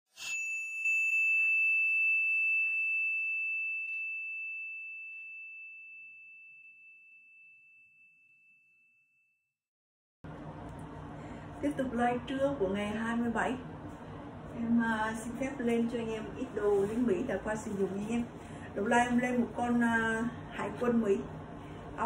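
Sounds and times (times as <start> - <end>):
bell-like chime ringing: 0.1 - 9.2.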